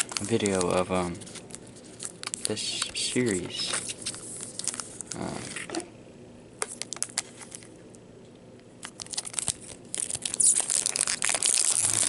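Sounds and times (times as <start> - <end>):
foil pack tearing open: 0.0 - 5.4, 8.8 - 12.0
foil wrapper crinkling: 0.0 - 5.7, 6.6 - 7.7, 8.8 - 12.0.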